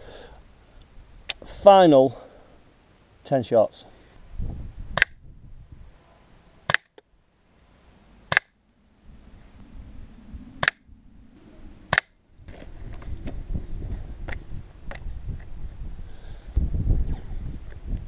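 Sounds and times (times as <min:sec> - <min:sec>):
air pistol shots: 0:05.0 - 0:05.2, 0:08.3 - 0:08.5, 0:11.9 - 0:12.1.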